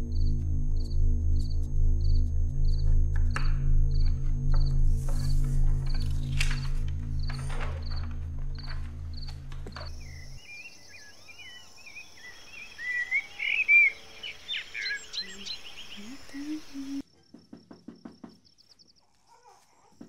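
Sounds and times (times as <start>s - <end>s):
high insect buzz: 0.0s - 17.0s
low music drone: 0.0s - 17.0s
birds chirping: 5.9s - 17.0s
knocking on wooden door: 17.3s - 18.5s.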